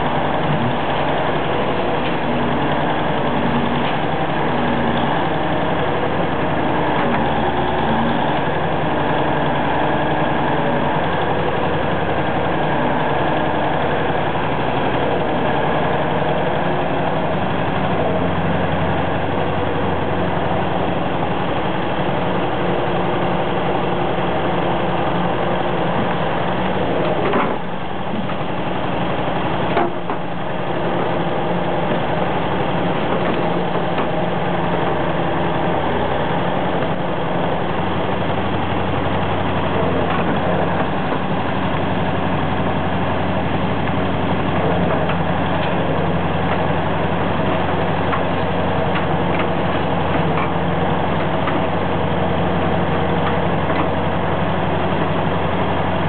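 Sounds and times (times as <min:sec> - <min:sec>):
excavator diesel engine running: 0:00.0 - 0:56.0.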